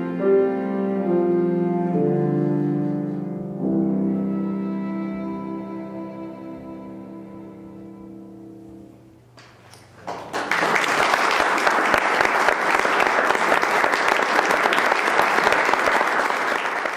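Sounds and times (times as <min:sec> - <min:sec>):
piano violin and cello chord: 0:00.0 - 0:09.2
audience applause: 0:10.0 - 0:16.9.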